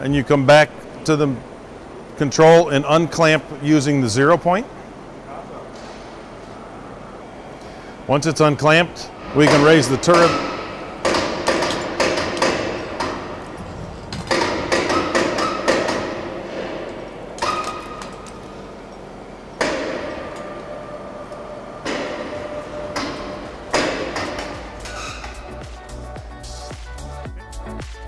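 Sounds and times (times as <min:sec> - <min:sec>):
metal clanks and knocks: 0:09.3 - 0:19.0, 0:21.8 - 0:25.6.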